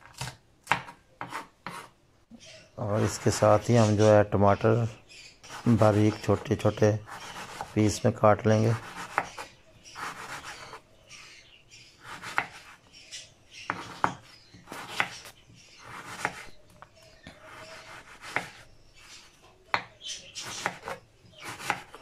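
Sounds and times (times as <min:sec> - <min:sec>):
knife slicing tomatoes: 0:00.0 - 0:01.9, 0:05.4 - 0:08.0, 0:08.7 - 0:10.8, 0:12.0 - 0:12.8, 0:13.7 - 0:16.6, 0:17.4 - 0:22.0.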